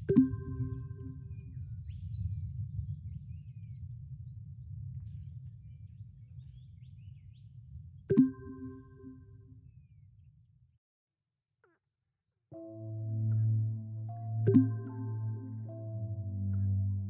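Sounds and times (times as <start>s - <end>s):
faint bird chirps: 0.1s - 10.0s
low background rumble: 0.2s - 8.1s.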